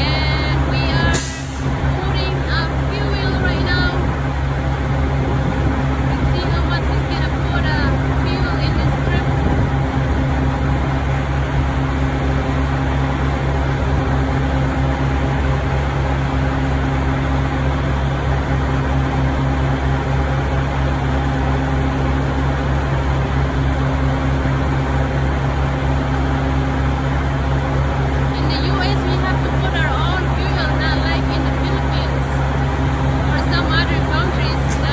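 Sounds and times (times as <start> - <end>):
fuel pump humming: 0.0 - 34.9.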